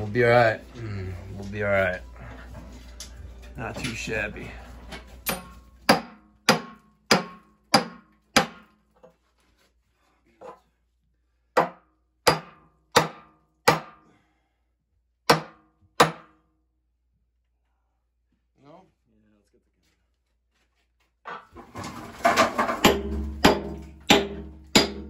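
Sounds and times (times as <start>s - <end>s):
hammer striking steel: 5.2s - 8.7s, 11.6s - 14.0s, 15.3s - 16.4s, 22.7s - 25.0s.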